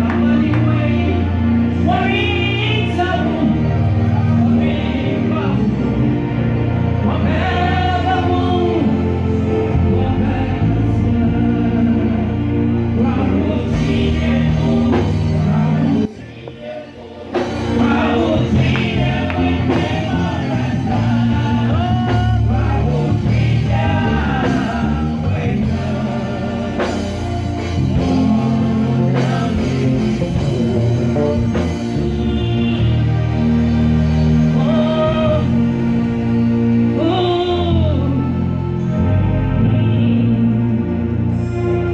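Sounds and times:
backing singers: 0:00.0 - 0:41.9
instrumental accompaniment: 0:00.0 - 0:41.9
woman singing gospel lead: 0:07.0 - 0:30.8, 0:34.5 - 0:35.7, 0:36.9 - 0:41.9.

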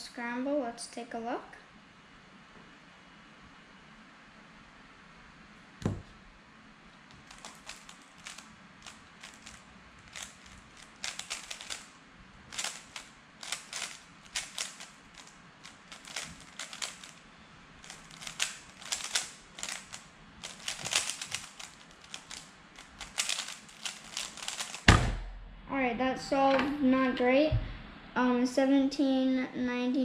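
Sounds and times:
puzzle cube clicking: 0:07.1 - 0:11.9, 0:12.5 - 0:17.2, 0:17.8 - 0:24.9.

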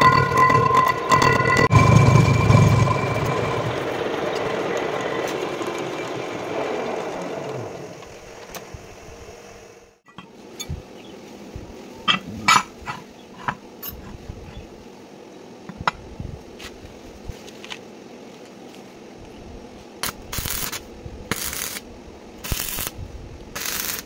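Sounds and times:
metal clanks on concrete: 0:12.1 - 0:14.2
welding arc crackle: 0:20.0 - 0:24.0.

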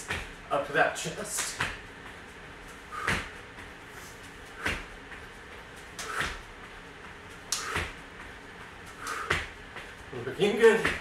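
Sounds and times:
landing thuds on rubber mats: 0:00.0 - 0:00.4, 0:01.4 - 0:01.8, 0:03.0 - 0:03.6, 0:04.6 - 0:05.2, 0:06.0 - 0:06.6, 0:07.6 - 0:08.0, 0:09.1 - 0:09.9, 0:10.6 - 0:11.0.

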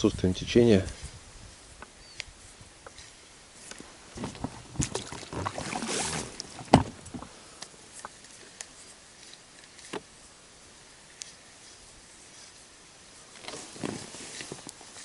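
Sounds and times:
rustling: 0:00.8 - 0:15.0
knocks in a boat: 0:06.6 - 0:07.3.

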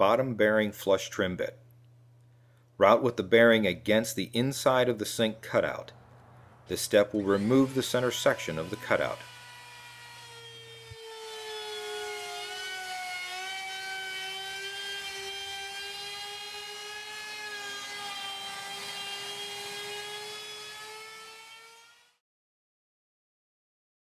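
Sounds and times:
trim router high whine: 0:06.7 - 0:22.0.

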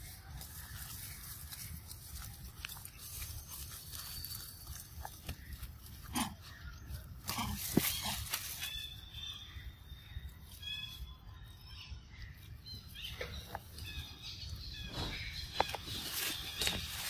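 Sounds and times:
rustles in dry leaf litter: 0:00.0 - 0:09.4, 0:14.9 - 0:17.0.

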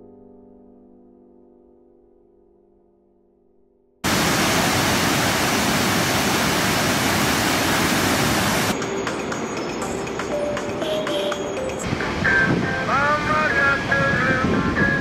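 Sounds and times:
river rapids rushing over rocks: 0:04.1 - 0:08.8, 0:11.8 - 0:15.0.

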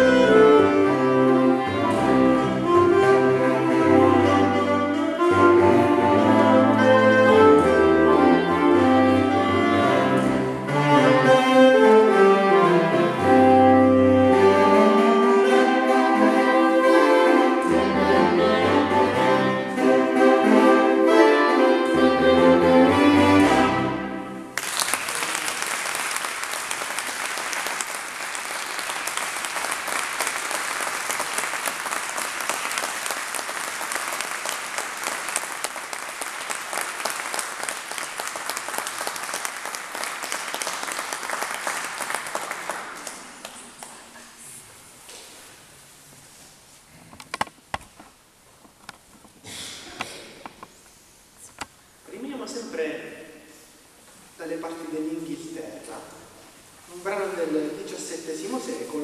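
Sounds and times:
saxophone quartet playing: 0:00.0 - 0:24.6
audience applause: 0:24.6 - 0:43.8.

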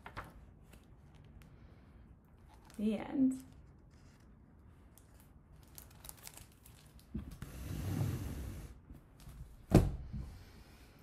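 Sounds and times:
pages rustling: 0:00.0 - 0:01.5, 0:02.4 - 0:07.4
book thump: 0:09.6 - 0:10.3.

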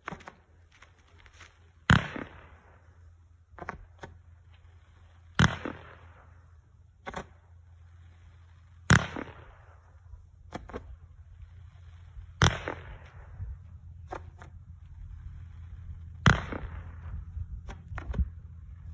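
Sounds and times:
firework bangs: 0:16.2 - 0:17.3.

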